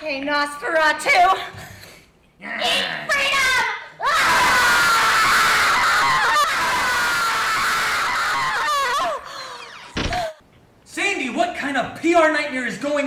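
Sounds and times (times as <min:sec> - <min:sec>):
woman screaming: 0:03.1 - 0:09.8.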